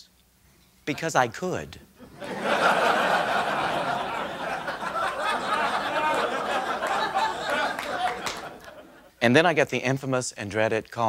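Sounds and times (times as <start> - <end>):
audience laughing: 2.0 - 9.1.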